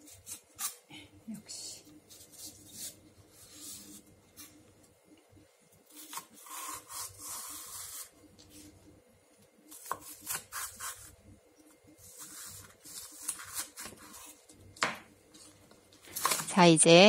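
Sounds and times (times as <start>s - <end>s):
knife slitting onion on cutting board: 5.9s - 8.1s, 9.7s - 11.2s, 12.0s - 14.3s.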